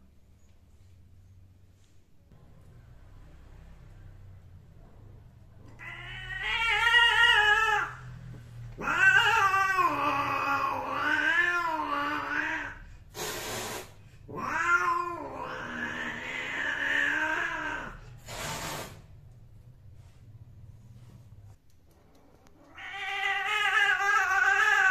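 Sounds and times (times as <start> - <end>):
cat yowling: 5.7 - 8.1, 8.8 - 12.8, 14.3 - 18.0, 22.7 - 24.9
cat hissing: 8.8 - 19.2.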